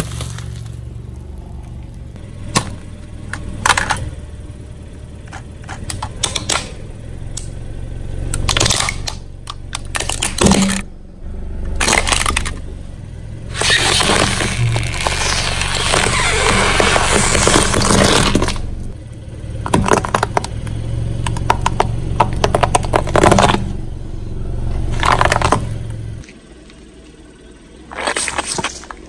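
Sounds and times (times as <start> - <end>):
tyre crushing plastic objects: 0.0 - 0.9, 8.4 - 10.9, 11.8 - 12.6, 13.5 - 18.6, 19.7 - 20.6, 21.2 - 23.7, 24.9 - 25.8
car humming: 0.0 - 29.0.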